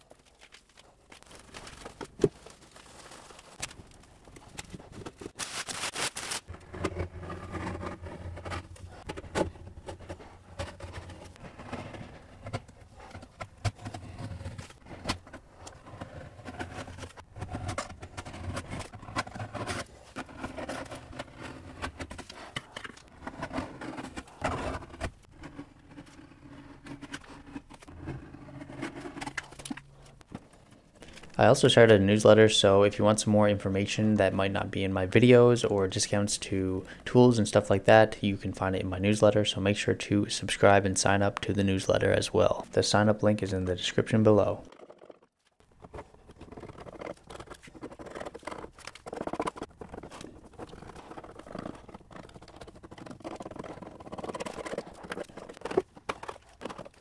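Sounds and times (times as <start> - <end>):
putty knife scraping paint: 45.8 - 57.0.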